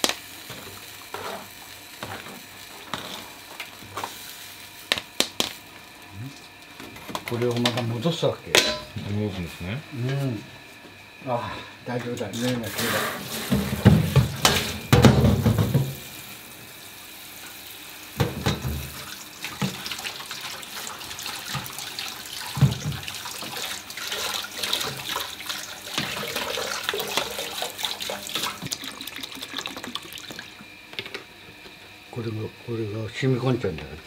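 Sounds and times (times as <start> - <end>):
tap water running: 0.0 - 3.9, 12.6 - 31.2
hands rinsing noodles in water: 18.8 - 30.5.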